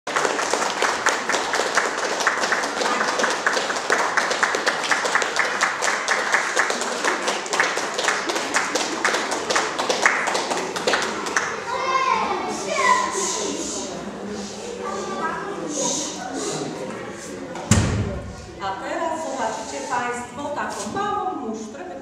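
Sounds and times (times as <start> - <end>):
audience applauding: 0.1 - 11.7.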